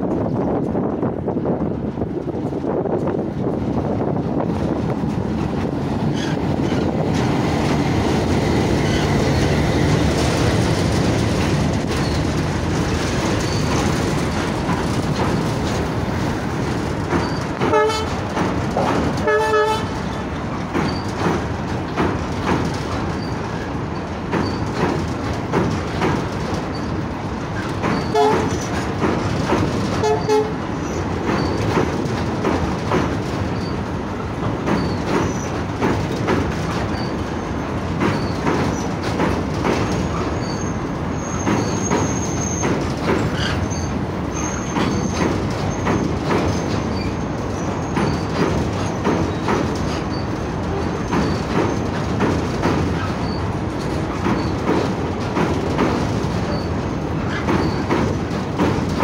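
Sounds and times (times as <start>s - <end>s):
diesel locomotive passing: 0.0s - 59.0s
train wheels clicking over rail joints: 0.0s - 59.0s.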